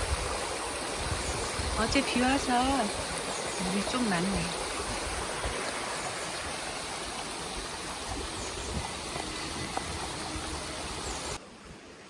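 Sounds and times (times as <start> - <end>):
water rushing over rocks: 0.0 - 11.4.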